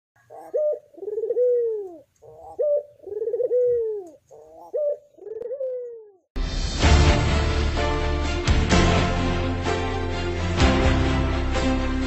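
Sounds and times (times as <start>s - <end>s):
dove cooing: 0.2s - 6.3s.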